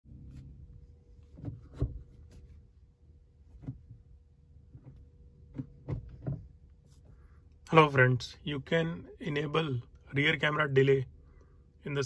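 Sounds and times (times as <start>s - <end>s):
car cabin rumble: 0.1s - 9.0s.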